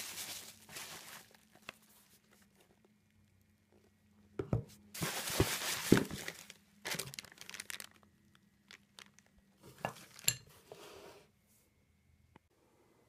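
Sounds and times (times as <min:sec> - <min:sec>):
plastic and bubble wrap crinkling: 0:00.0 - 0:02.9, 0:04.9 - 0:10.4.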